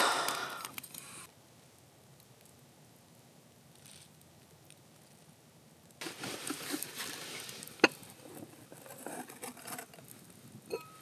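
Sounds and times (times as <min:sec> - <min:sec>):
rustling of cooking gear: 0:06.0 - 0:10.5.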